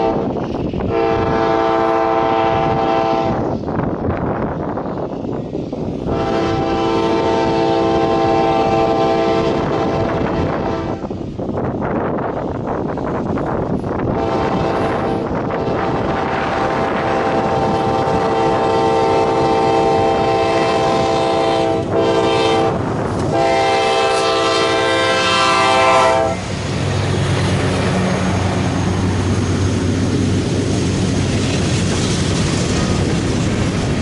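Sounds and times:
locomotive engine rumble: 0:00.0 - 0:34.0
rail cars clattering: 0:00.0 - 0:34.0
locomotive air horn: 0:00.9 - 0:03.4, 0:06.1 - 0:11.1, 0:14.1 - 0:26.4.

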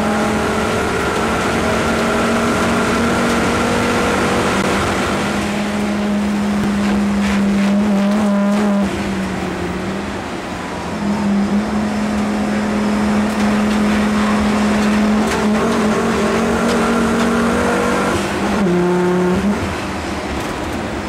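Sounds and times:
race car engine at high revs: 0:00.0 - 0:21.0.

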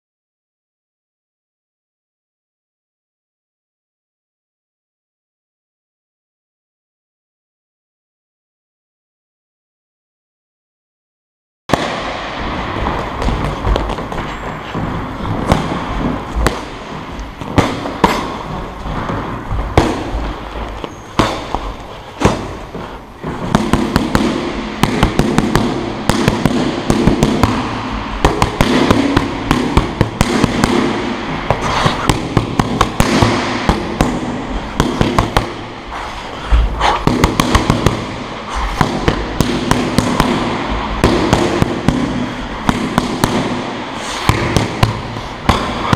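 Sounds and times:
boxing gloves smacking focus mitts: 0:13.2 - 0:14.4, 0:15.3 - 0:15.7, 0:16.3 - 0:16.7, 0:17.4 - 0:20.2, 0:20.8 - 0:35.6, 0:36.5 - 0:40.4, 0:41.0 - 0:43.6, 0:44.2 - 0:45.9.

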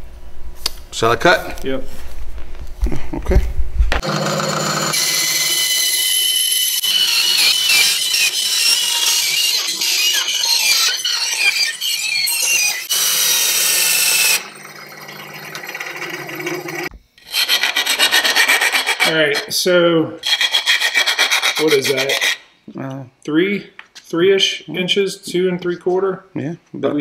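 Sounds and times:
saw motor humming: 0:04.0 - 0:19.1
band saw cutting metal: 0:04.0 - 0:19.6, 0:20.2 - 0:22.4.

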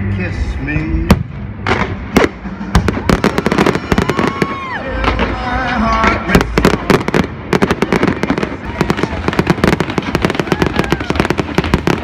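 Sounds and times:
firework bangs and crackles: 0:01.0 - 0:12.0
firework whistling: 0:02.1 - 0:05.4, 0:06.4 - 0:12.0.

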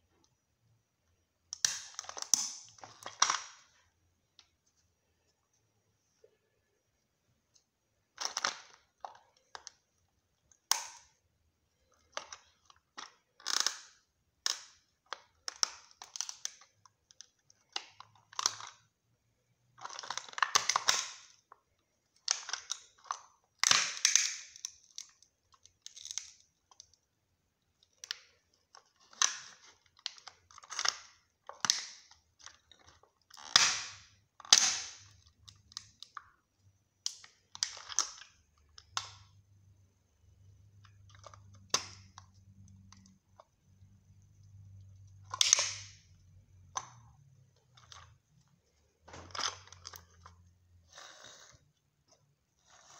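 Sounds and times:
plastic model cracking underfoot: 0:12.1 - 0:18.8, 0:22.2 - 0:26.9, 0:27.9 - 0:36.3, 0:45.2 - 0:48.4.

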